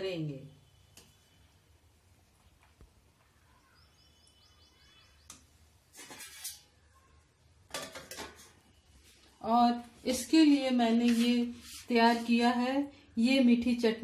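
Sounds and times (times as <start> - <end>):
faint bird chirps: 3.2 - 5.6
steel lid scraping on wok: 6.0 - 6.7.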